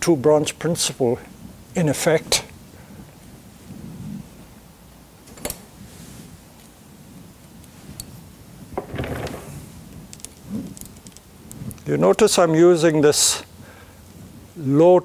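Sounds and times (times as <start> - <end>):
wire and branch clicking: 9.9 - 12.2.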